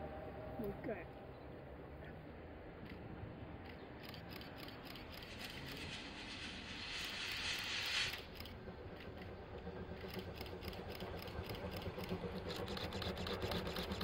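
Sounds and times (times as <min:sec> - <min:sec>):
steam locomotive exhaust beats: 0:03.6 - 0:14.0
loud steam hiss: 0:05.2 - 0:08.6.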